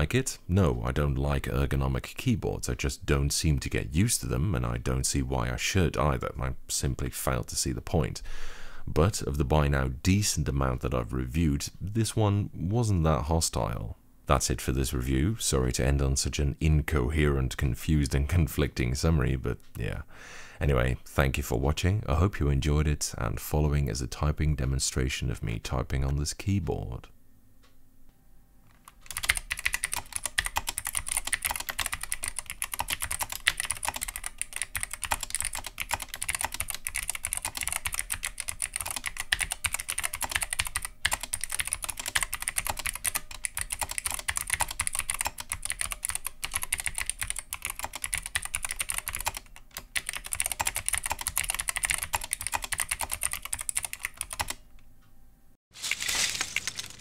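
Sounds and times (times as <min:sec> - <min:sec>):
fast keyboard typing: 0:28.8 - 0:54.6.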